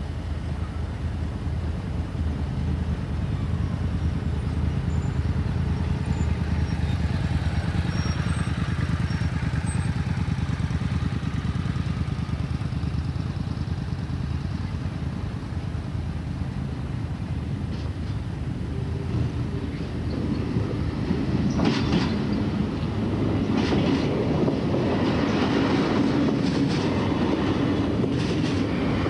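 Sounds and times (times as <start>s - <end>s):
vehicle engine idling: 0.0s - 21.5s.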